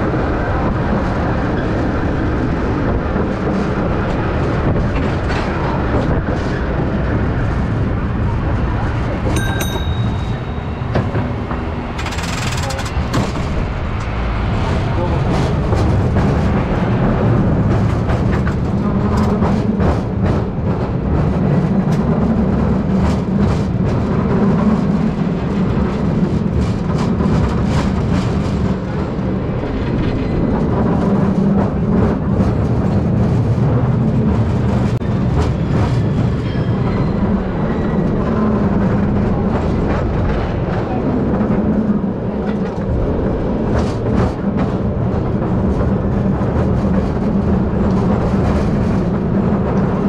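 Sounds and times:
streetcar rumbling on rails: 0:00.0 - 0:50.0
wheels clacking on track: 0:00.0 - 0:50.0.

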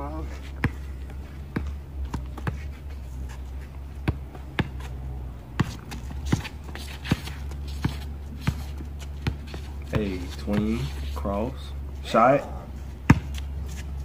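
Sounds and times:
steady low hum: 0:00.0 - 0:14.0
basketball bouncing on concrete: 0:00.5 - 0:02.7, 0:03.9 - 0:10.8, 0:13.0 - 0:13.9.

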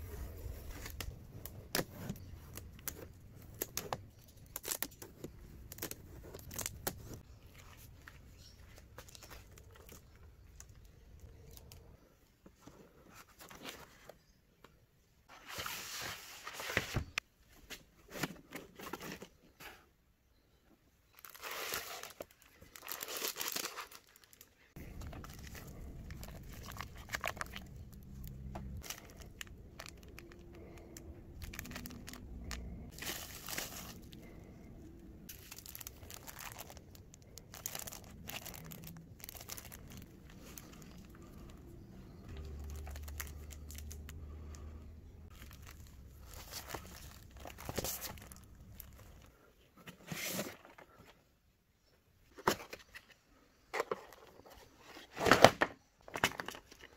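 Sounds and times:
plastic wrap crinkling and tearing: 0:01.7 - 0:07.2, 0:21.2 - 0:41.6, 0:42.2 - 0:44.7, 0:45.3 - 0:49.3.

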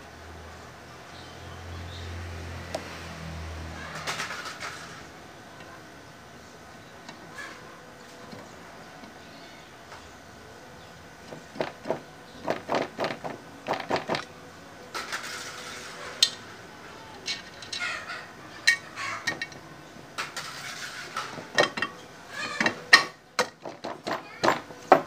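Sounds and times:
metallic clicks of engine parts: 0:18.6 - 0:19.6.

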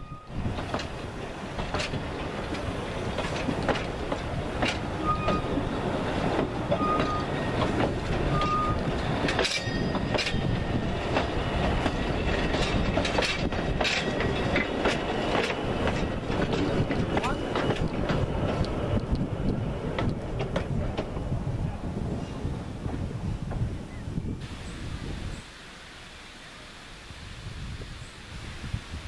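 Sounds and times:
train wheels clattering over rail joints: 0:00.4 - 0:21.3.

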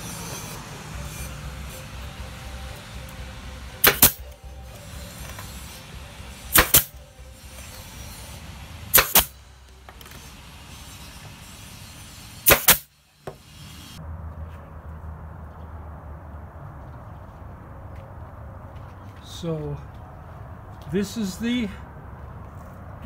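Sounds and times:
nail gun firing: 0:03.8 - 0:04.2, 0:06.5 - 0:07.0, 0:08.9 - 0:09.4, 0:12.4 - 0:12.9.

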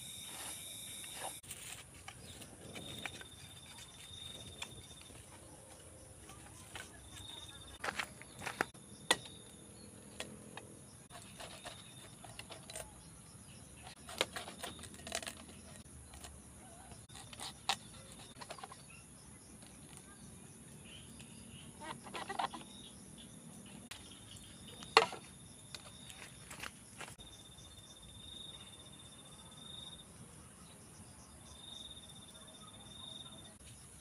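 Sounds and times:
faint high steady tone: 0:00.0 - 0:01.4
quiet outdoor ambience: 0:00.0 - 0:34.0.

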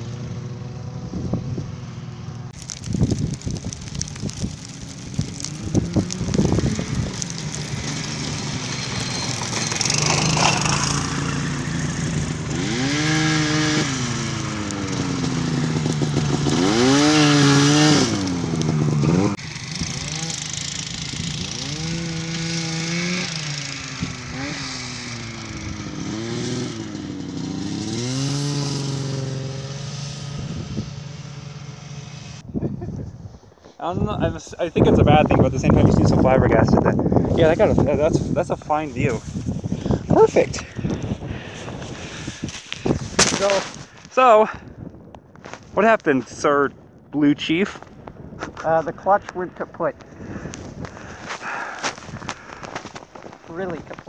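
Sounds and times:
go-kart engine revving: 0:03.9 - 0:32.4.

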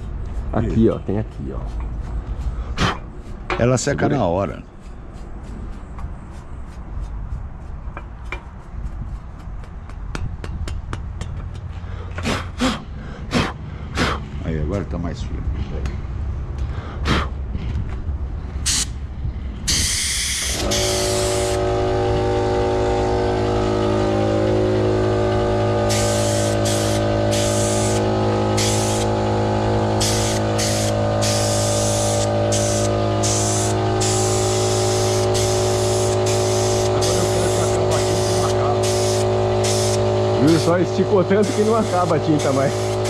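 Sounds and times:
steady machine hum: 0:00.0 - 0:43.0
paint spraying hissing bursts: 0:18.6 - 0:19.0, 0:19.7 - 0:23.6, 0:25.6 - 0:43.0.

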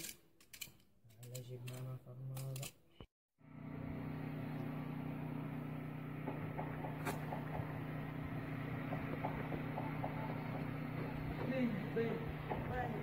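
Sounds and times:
low mechanical hum: 0:03.4 - 0:13.0.

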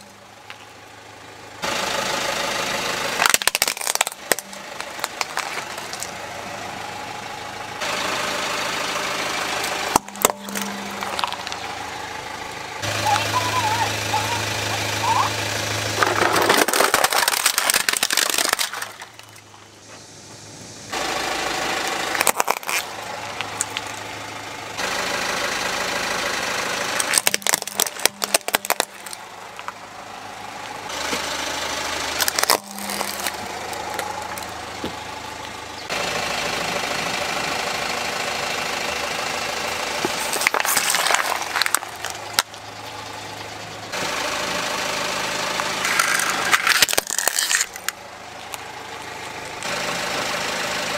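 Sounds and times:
car engine running: 0:00.0 - 0:50.9
plastic toys cracking and crunching: 0:03.2 - 0:06.2, 0:09.6 - 0:11.7, 0:15.8 - 0:19.7, 0:21.9 - 0:24.0, 0:26.9 - 0:29.8, 0:32.1 - 0:35.5, 0:40.0 - 0:42.6, 0:45.5 - 0:49.8.

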